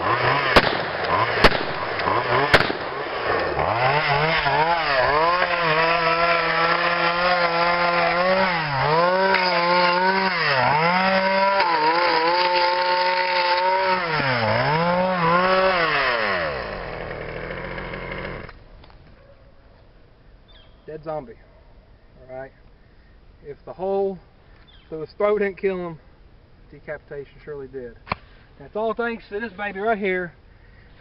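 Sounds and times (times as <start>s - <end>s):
chainsaw running: 0.0s - 18.6s.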